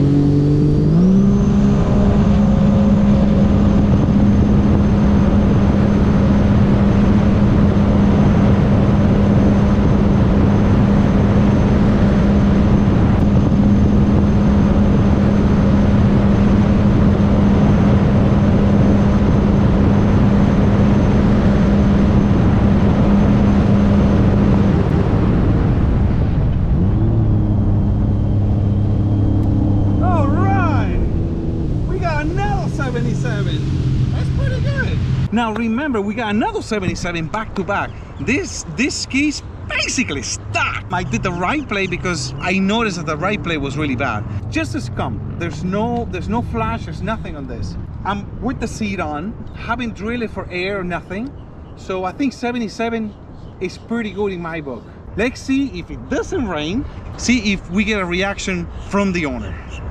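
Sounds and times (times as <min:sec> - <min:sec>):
jet ski engine at full revs: 0:00.0 - 0:35.3
wind: 0:00.0 - 0:59.9.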